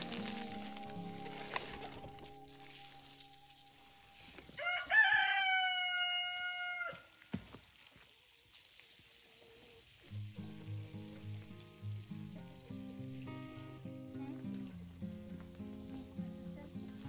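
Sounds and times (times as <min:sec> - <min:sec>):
rooster crowing: 0:04.0 - 0:07.2.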